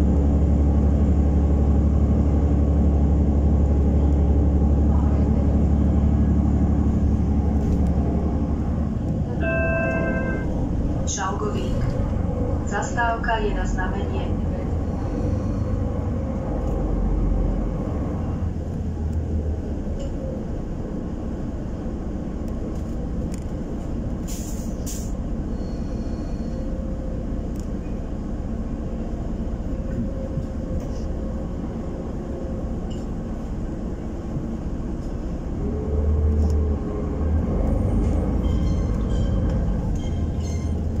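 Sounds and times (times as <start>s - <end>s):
bus engine and road rumble: 0.0s - 41.0s
short air hisses: 24.2s - 25.2s.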